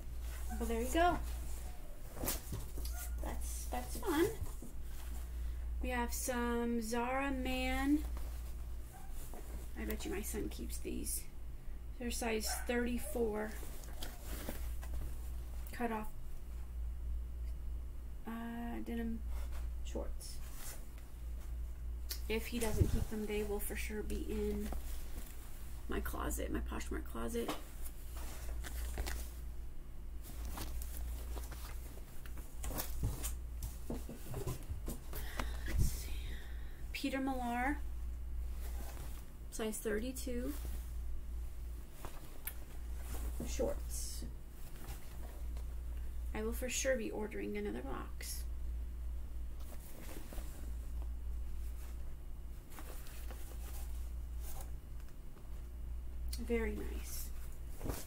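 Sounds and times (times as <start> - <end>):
fabric rustling: 0.0 - 5.6, 7.7 - 10.2, 13.1 - 15.7, 20.4 - 25.9, 27.7 - 29.6, 30.2 - 36.1, 37.7 - 39.5, 40.2 - 46.2, 49.4 - 55.8, 56.6 - 58.0
steady low hum: 0.0 - 58.0.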